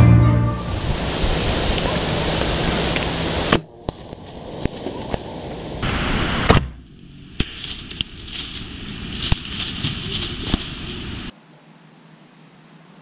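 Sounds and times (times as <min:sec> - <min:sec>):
twigs snapping: 0:03.0 - 0:05.8, 0:07.4 - 0:11.0
loud crack: 0:03.5 - 0:10.8
deer crashing through dry leaves: 0:03.8 - 0:05.8, 0:07.4 - 0:11.3.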